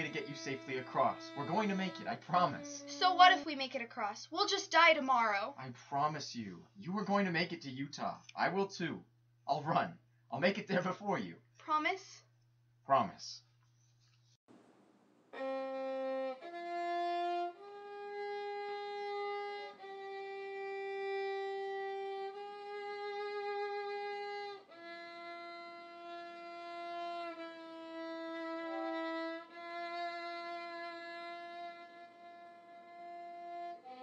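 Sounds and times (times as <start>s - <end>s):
solo violin melody: 0.0s - 3.6s, 15.4s - 34.0s.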